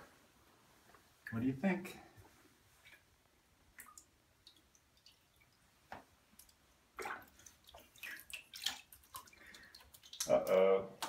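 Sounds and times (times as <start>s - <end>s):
water dripping: 2.8s - 11.0s.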